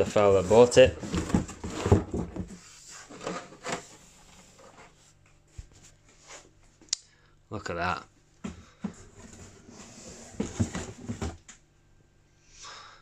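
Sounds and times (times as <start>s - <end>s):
cardboard packaging scraping: 0.0s - 5.0s, 9.1s - 11.4s.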